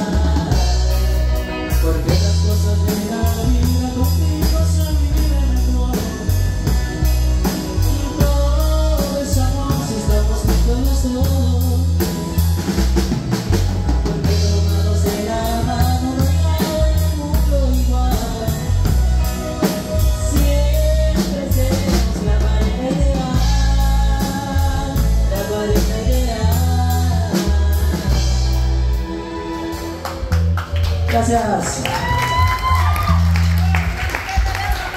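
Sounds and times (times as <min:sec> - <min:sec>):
woman and man singing: 0:00.0 - 0:12.4, 0:14.0 - 0:28.6
bass guitar: 0:00.0 - 0:34.9
drum kit: 0:00.0 - 0:34.9
electric guitar: 0:00.0 - 0:34.9
keyboard: 0:00.0 - 0:34.9.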